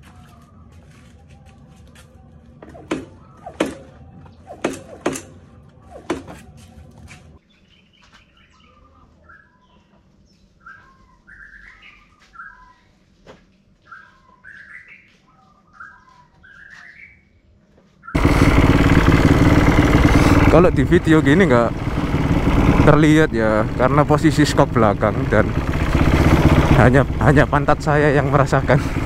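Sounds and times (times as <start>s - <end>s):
birds chirping: 2.2s - 29.0s
suspension knocking and creaking: 18.2s - 29.0s.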